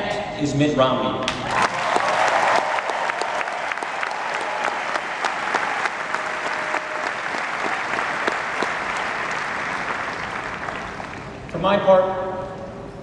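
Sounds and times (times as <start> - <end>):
crowd applauding: 1.3 - 11.6.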